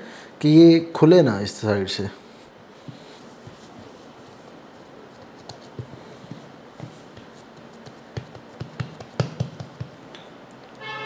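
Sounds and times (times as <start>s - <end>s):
hands patting dough: 2.8s - 10.1s.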